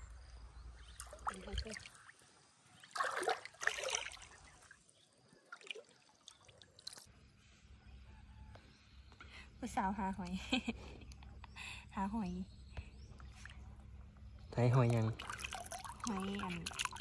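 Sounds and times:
water sloshing and trickling: 0.7s - 7.2s, 13.1s - 17.0s.

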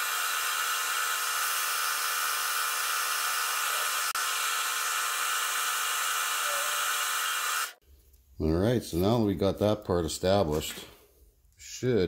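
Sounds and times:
metal lathe whining: 0.0s - 7.8s.

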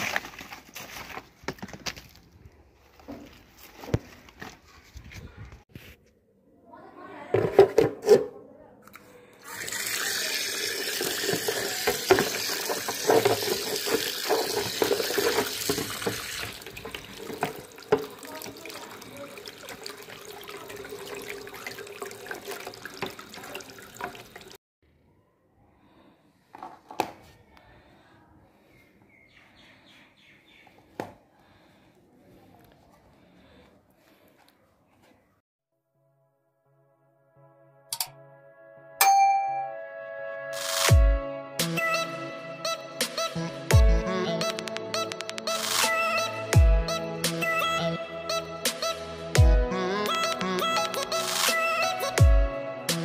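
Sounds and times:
plastic rustling and crackling: 0.0s - 5.9s, 11.3s - 18.9s
tap water running: 9.4s - 24.6s
water splashing in basin: 9.6s - 24.6s
scattered clicks: 44.5s - 45.6s.

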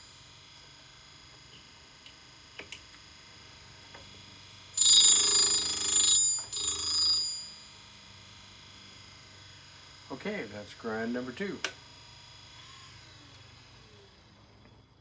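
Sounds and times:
grinding wheel whine: 3.9s - 8.4s, 9.2s - 15.0s
high ringing grinding: 4.8s - 7.9s.

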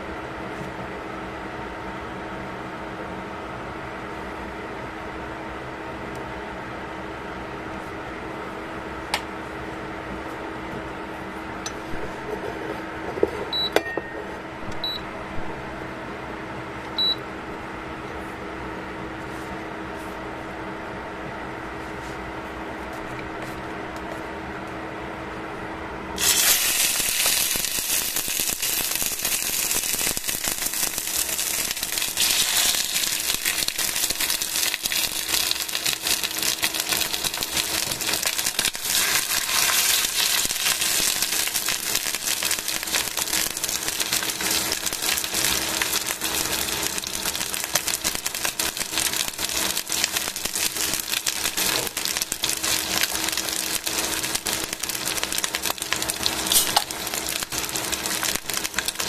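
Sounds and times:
chicken frying in hot oil: 26.2s - 59.0s.

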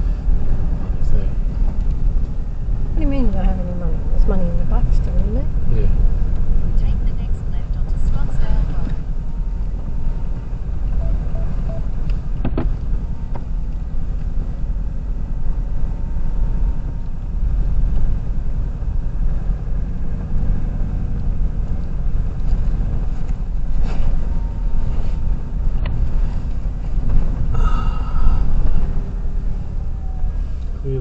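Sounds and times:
engine and road noise rumble: 0.0s - 31.0s.

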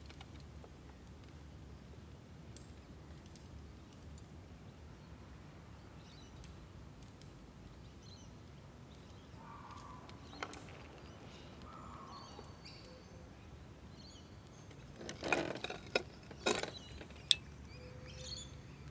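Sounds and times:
faint bird chirps: 9.0s - 14.7s, 16.8s - 18.9s.

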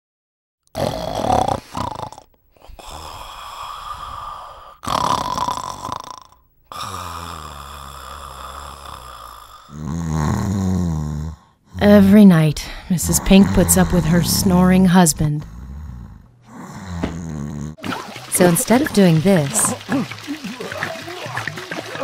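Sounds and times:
man snoring: 0.7s - 12.0s, 12.8s - 17.8s.

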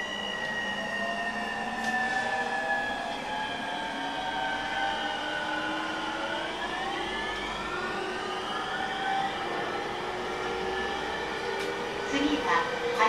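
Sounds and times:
electric train motor whine: 0.0s - 13.0s.

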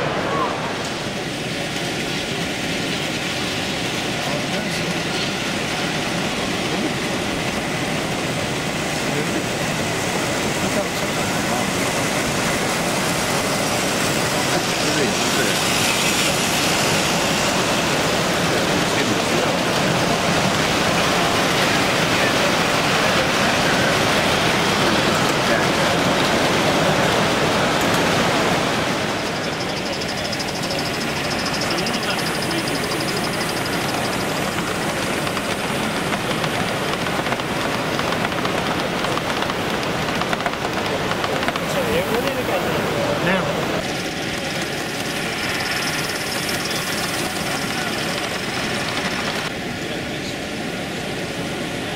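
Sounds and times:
crowd murmur: 0.0s - 1.8s, 38.1s - 45.8s
busy hall noise: 0.0s - 51.9s
model train wheels rattling: 29.2s - 42.4s
fast high-pitched ticking: 29.4s - 35.6s.

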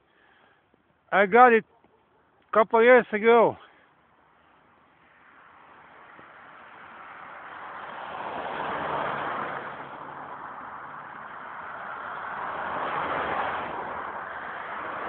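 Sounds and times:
vehicles passing on snowy road: 0.0s - 15.0s
minibus passing: 4.2s - 15.0s.

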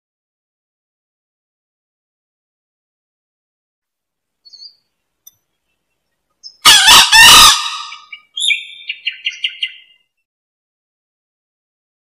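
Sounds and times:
rooster crowing harshly: 6.6s - 8.1s.

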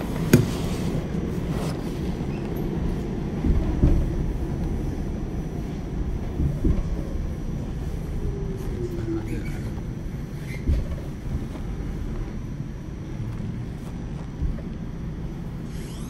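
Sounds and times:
subway train rumbling: 0.0s - 16.0s
running gear knocks: 2.4s - 4.9s, 6.1s - 7.6s, 13.2s - 15.1s.

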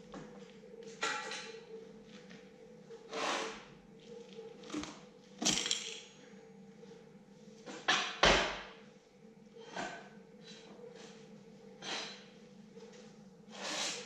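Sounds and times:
steady low hum: 0.0s - 14.0s
metal parts clanking on wood: 5.4s - 6.2s.

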